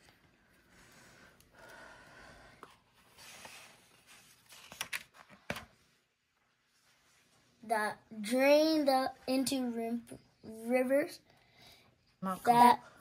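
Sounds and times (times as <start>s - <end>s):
paper pages rustling: 2.9s - 5.9s.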